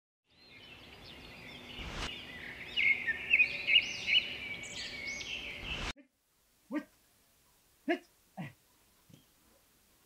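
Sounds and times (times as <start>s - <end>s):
songbirds chirping and whistling: 0.3s - 5.9s.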